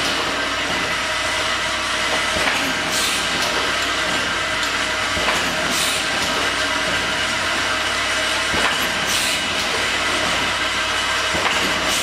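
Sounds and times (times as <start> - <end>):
machine rattle and hum: 0.0 - 12.0
pneumatic air hisses: 2.3 - 3.4, 5.5 - 6.2, 8.6 - 9.6.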